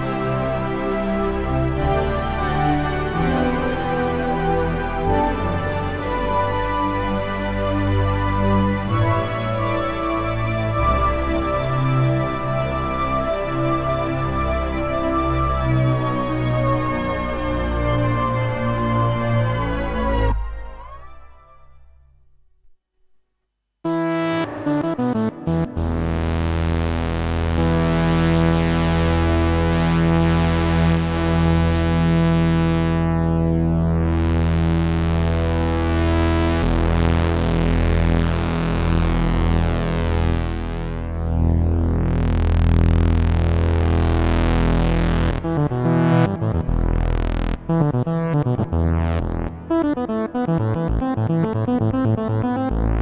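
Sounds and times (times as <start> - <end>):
synthesizer chord held: 23.9 - 53.0.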